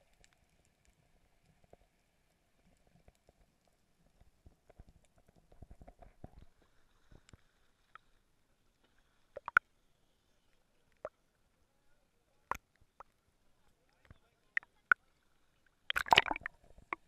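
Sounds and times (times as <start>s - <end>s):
muffled underwater crackling: 9.1s - 9.6s, 15.9s - 17.0s.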